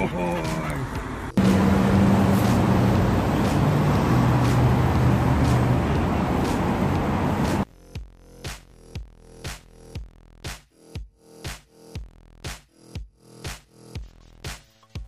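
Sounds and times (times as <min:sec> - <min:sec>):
road noise: 0:00.3 - 0:07.7
vehicle engine running: 0:00.9 - 0:07.7.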